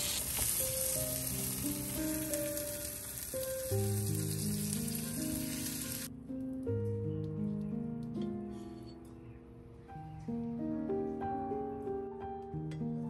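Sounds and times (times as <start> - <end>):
egg and shrimp sizzling in a pan: 0.0 - 6.1
soft background music: 0.3 - 13.0.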